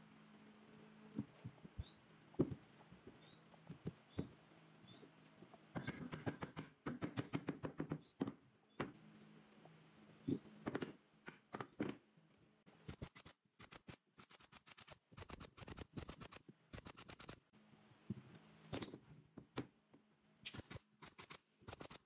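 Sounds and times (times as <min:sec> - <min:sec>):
low steady hum: 0:00.0 - 0:06.9, 0:08.1 - 0:12.9.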